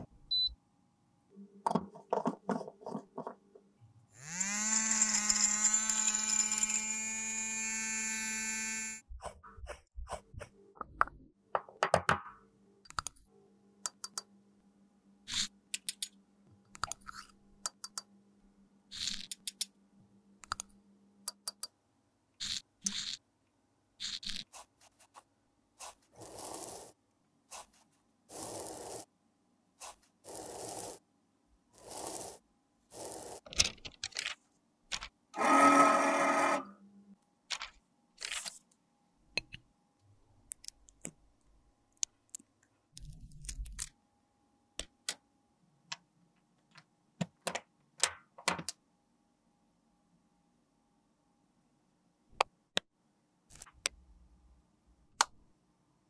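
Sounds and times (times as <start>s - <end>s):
electric grinder motor running: 4.2s - 9.0s, 35.4s - 36.7s.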